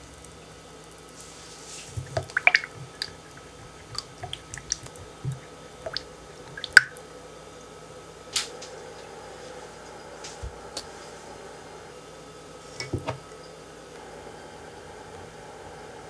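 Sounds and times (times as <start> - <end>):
liquid swishing: 1.2 - 6.9.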